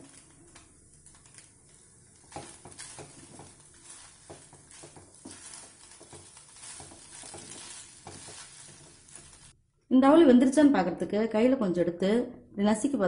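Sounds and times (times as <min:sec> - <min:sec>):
wooden spatula scraping a pan: 0:00.0 - 0:09.6.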